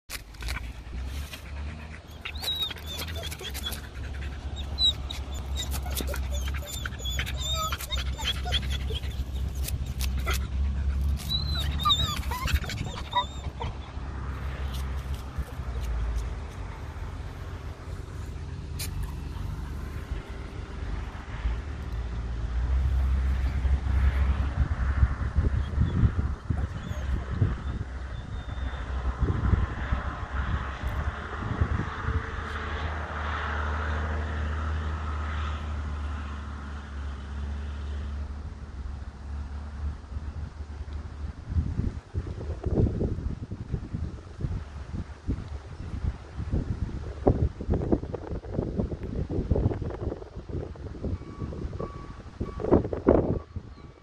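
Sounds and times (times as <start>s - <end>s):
paws digging in sand: 0.1s - 13.6s, 14.4s - 20.3s
low engine hum: 0.1s - 54.0s
wind buffeting microphone: 0.2s - 32.9s, 40.0s - 54.0s
dog whining: 0.4s - 16.0s, 25.6s - 28.8s.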